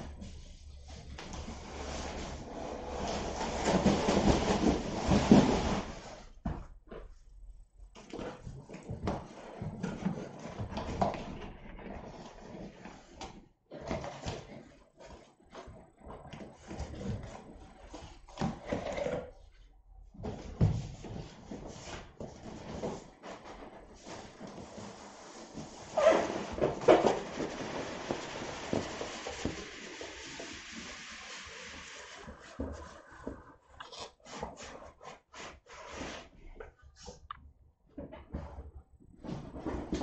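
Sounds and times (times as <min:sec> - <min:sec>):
cardboard rubbing and scraping: 0:00.1 - 0:06.6, 0:20.3 - 0:37.1.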